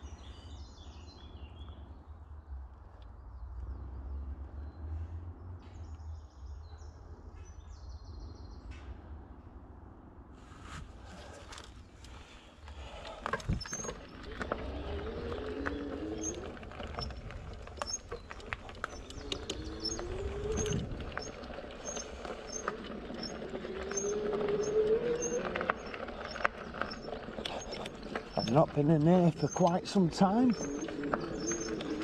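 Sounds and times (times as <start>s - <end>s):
tyres rumbling on trail: 10.4s - 32.0s.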